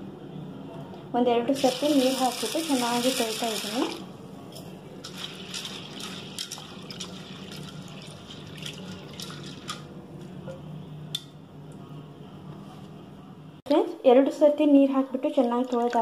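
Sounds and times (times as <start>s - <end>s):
low steady hum: 0.0s - 16.0s
water sloshing in a bowl: 5.0s - 9.9s, 15.4s - 16.0s.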